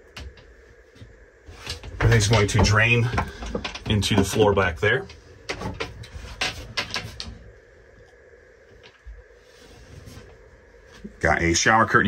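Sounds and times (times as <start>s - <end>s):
faint clicks and knocks: 0.0s - 9.2s.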